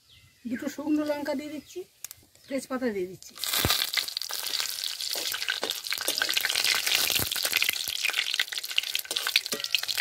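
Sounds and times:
spices sizzling in hot oil: 0:02.9 - 0:10.0
metal spatula scraping a pan: 0:05.0 - 0:07.2, 0:09.0 - 0:10.0.

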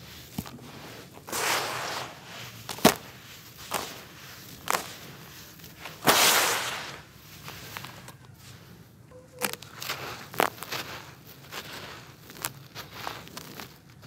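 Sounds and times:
hands crunching gritty crumbs: 0:00.0 - 0:06.2, 0:09.3 - 0:14.0.

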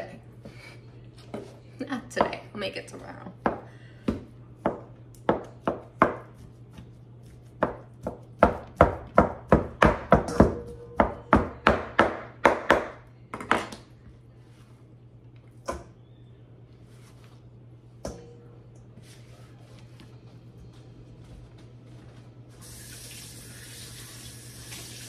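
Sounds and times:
knife chopping on cutting board: 0:03.4 - 0:13.0.

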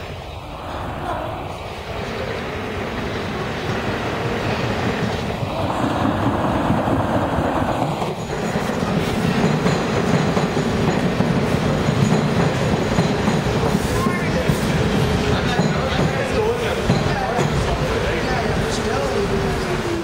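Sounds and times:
subway train rumbling on rails: 0:00.0 - 0:20.0
wheels clickety-clack: 0:04.8 - 0:19.7.

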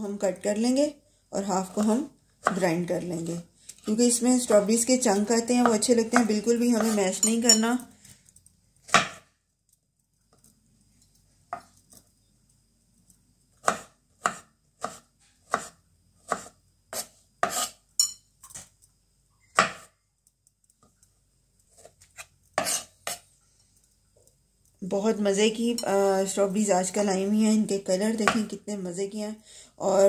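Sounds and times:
cleaver chopping on wooden board: 0:08.9 - 0:09.2, 0:13.6 - 0:15.7.

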